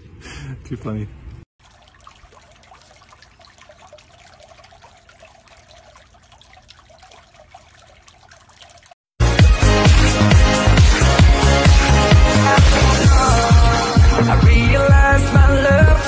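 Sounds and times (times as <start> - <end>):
water trickling: 1.6 - 9.1
drips and small splashes: 1.6 - 9.2.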